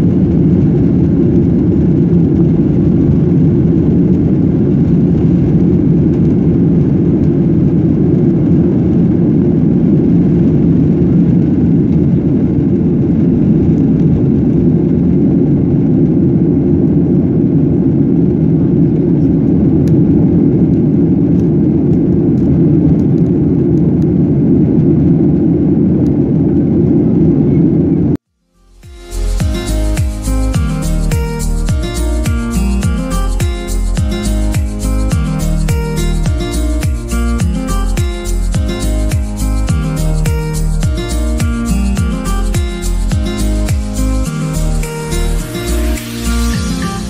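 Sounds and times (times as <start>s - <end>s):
jet engines at takeoff thrust: 0.0s - 28.2s
airflow noise: 28.5s - 47.0s.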